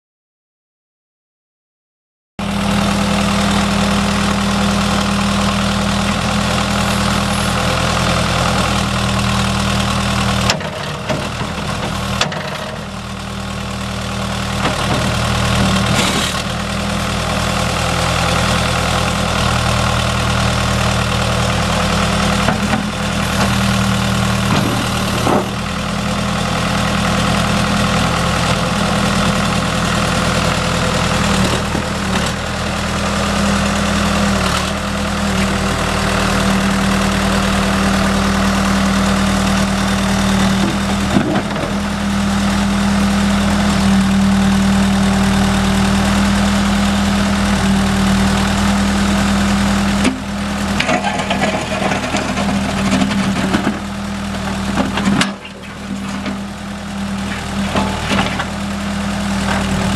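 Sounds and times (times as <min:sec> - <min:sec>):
diesel engine idling: 0:02.4 - 0:59.9.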